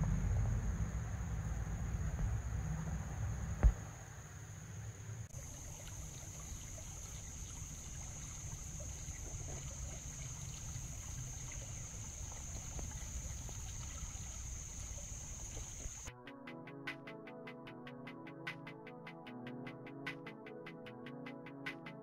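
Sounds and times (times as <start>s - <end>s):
steady high-pitched whine: 0.0s - 16.1s
creek water running over stones: 5.3s - 16.1s.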